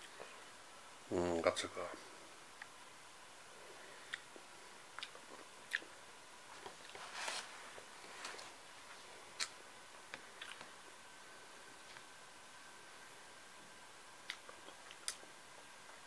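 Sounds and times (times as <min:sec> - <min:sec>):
faint chewing: 0:03.6 - 0:07.0, 0:07.7 - 0:11.0, 0:14.2 - 0:16.0
short rustling: 0:06.6 - 0:08.6.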